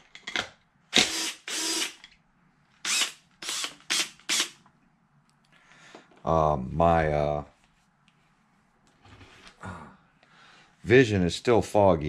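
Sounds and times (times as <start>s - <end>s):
cordless power driver bursts: 0.9s - 2.0s, 2.8s - 4.6s.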